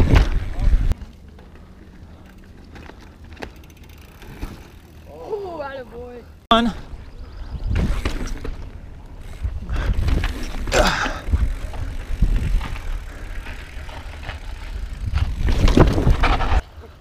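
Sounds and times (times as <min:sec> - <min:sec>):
wind rumbling on microphone: 0:00.0 - 0:01.0, 0:06.8 - 0:16.6
bike tyres rolling over rock: 0:00.0 - 0:05.5, 0:06.8 - 0:16.6.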